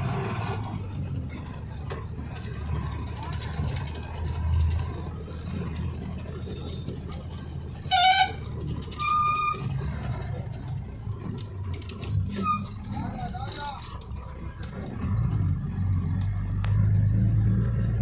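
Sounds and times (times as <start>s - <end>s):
vehicle engine and tyres rumbling: 0.0s - 18.0s
vehicle horn toots: 7.9s - 9.6s.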